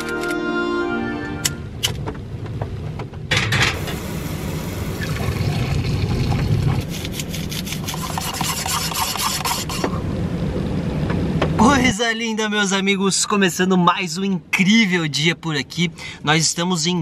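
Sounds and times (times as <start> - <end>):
hot liquid pouring into metal tumbler: 5.0 - 6.8.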